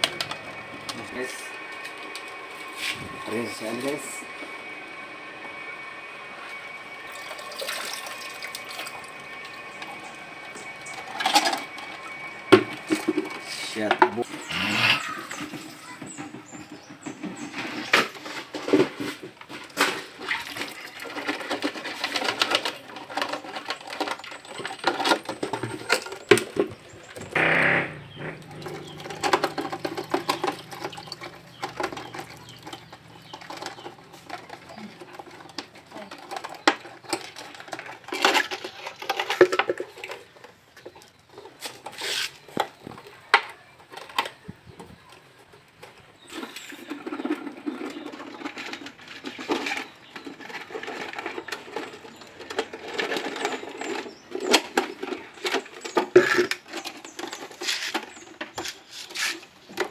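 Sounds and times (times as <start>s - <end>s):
plastic bottles crinkling: 17.4s - 44.5s, 45.2s - 59.9s.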